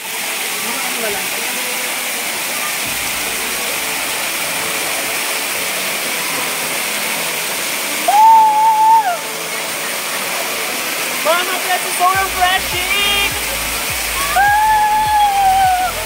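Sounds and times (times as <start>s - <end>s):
waterfall pouring: 0.0s - 16.0s
high-pitched vocal whoop: 8.0s - 9.2s, 14.2s - 16.0s.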